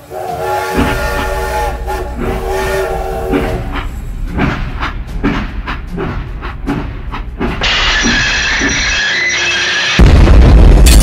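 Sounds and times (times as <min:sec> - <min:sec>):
train horn blasts: 0:00.0 - 0:03.9
train wheels clacking on rail joints: 0:00.2 - 0:08.8.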